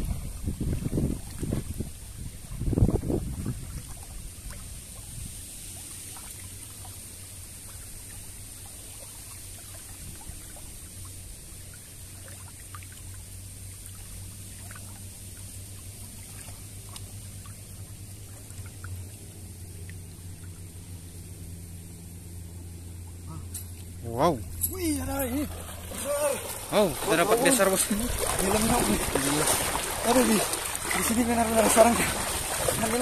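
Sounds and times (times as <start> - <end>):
water drips and splashes: 0.0 - 20.8, 23.6 - 33.0
river water trickling: 0.0 - 33.0
loud water splash: 24.9 - 33.0.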